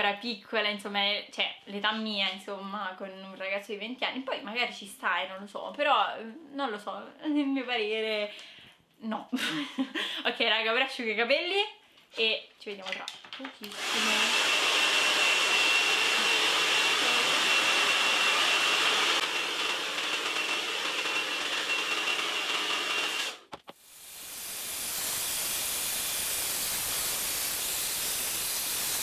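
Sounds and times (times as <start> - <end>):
hair dryer blowing: 13.6 - 29.0.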